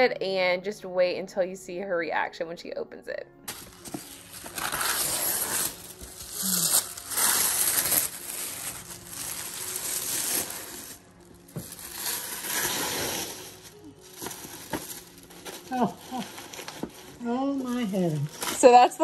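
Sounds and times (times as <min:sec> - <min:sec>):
tissue paper rustling: 0:03.5 - 0:19.0.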